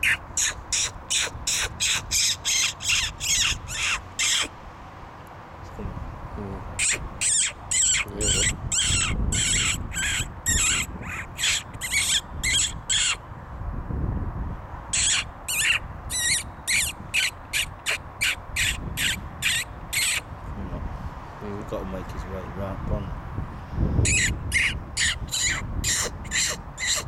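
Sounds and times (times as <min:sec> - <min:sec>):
high-pitched fox call squeaks: 0:00.0 - 0:04.5, 0:06.8 - 0:13.2, 0:14.9 - 0:20.3, 0:24.0 - 0:27.0.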